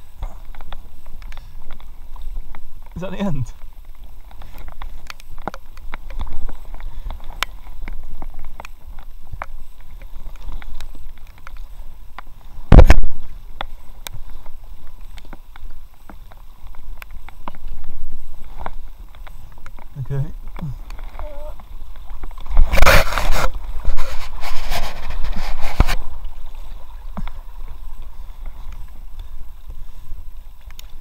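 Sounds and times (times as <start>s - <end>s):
paddle knocks and rubbing: 21.1s - 26.1s.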